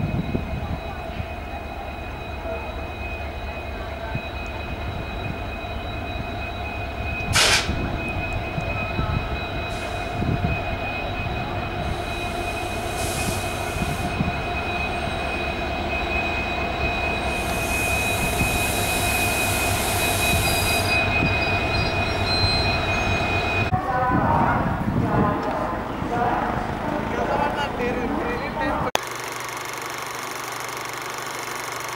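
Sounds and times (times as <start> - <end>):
diesel locomotive rumble: 0.0 - 29.0
air hiss: 7.4 - 7.7.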